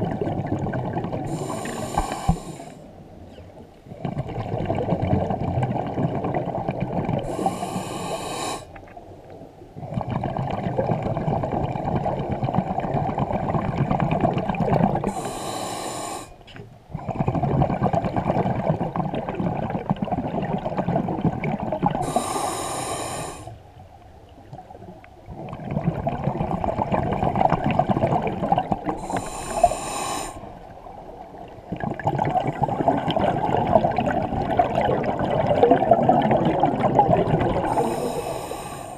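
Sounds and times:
exhaust bubbling underwater: 0.0s - 2.7s, 3.9s - 8.6s, 9.7s - 15.5s, 16.9s - 22.9s, 24.6s - 38.9s
regulator inhale hiss: 1.3s - 2.9s, 7.3s - 8.8s, 15.1s - 16.4s, 22.0s - 23.6s, 29.0s - 30.6s, 37.7s - 38.9s.

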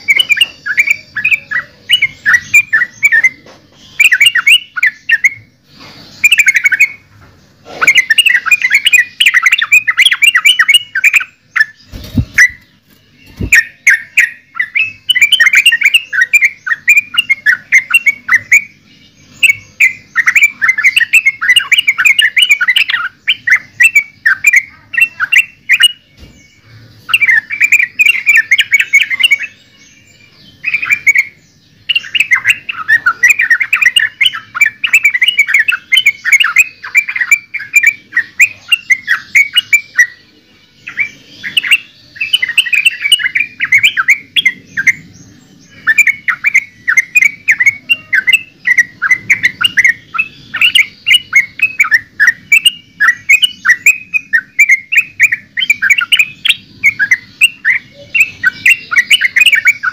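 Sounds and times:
bird singing loud chirps: 0.0s - 59.9s.

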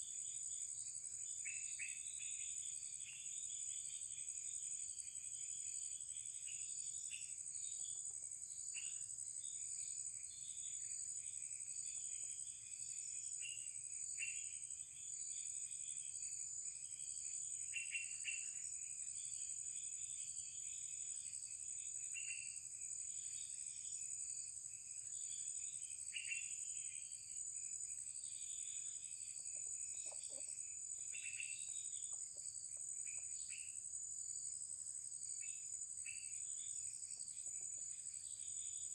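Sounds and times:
insects droning: 0.0s - 38.9s
bird chirps: 29.5s - 33.8s.

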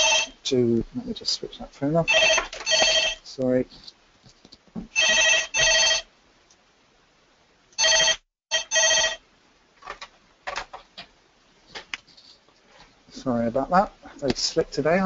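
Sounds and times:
telephone double ring: 2.1s - 3.2s, 5.0s - 6.0s, 7.8s - 9.2s.

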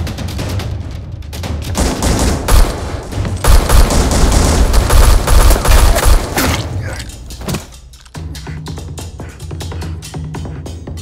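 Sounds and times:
rapid automatic gunfire: 1.8s - 6.4s.

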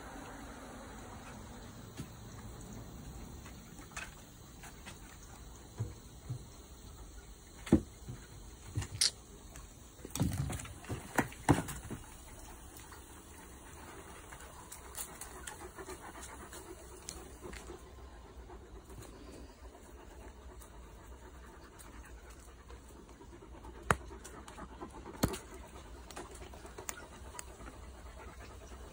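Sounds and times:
dogs panting: 10.7s - 28.9s.

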